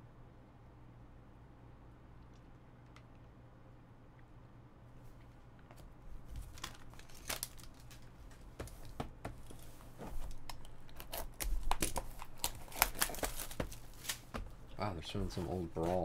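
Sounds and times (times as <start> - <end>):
packaging crinkling: 6.3 - 14.5.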